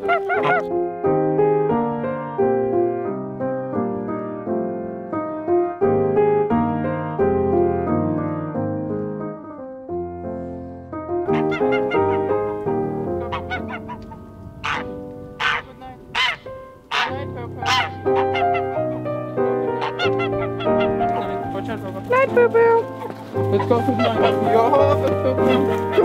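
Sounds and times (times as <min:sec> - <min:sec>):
poultry calls: 0:00.0 - 0:00.7, 0:11.3 - 0:26.0
piano music: 0:00.0 - 0:26.0.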